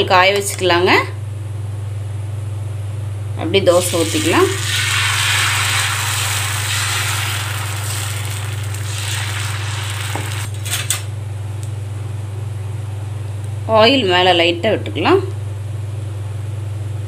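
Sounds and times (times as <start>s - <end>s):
batter sizzling on hot pan: 3.7s - 10.6s.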